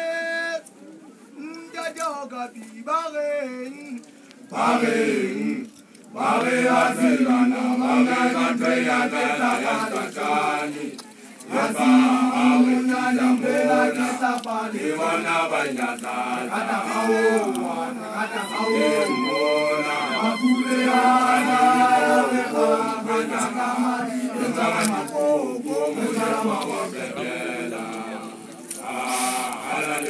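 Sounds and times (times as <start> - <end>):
man chanting: 16.7 - 26.5.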